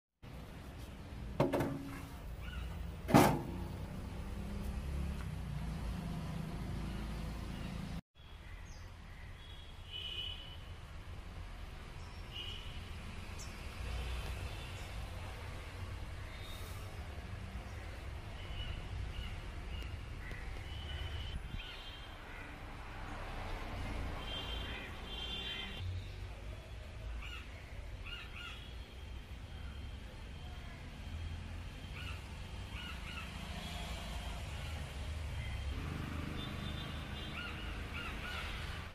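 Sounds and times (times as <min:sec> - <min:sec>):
birds calling: 0:01.9 - 0:03.0, 0:36.4 - 0:38.8.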